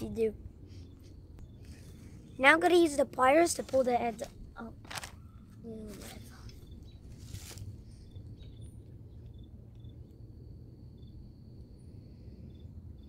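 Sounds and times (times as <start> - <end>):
rustle: 3.4 - 8.0.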